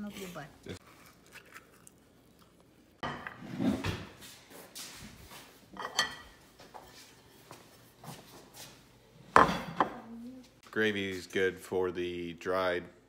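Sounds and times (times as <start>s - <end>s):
ceramic dishes clattering: 3.0s - 3.6s, 5.8s - 6.4s, 9.3s - 10.0s.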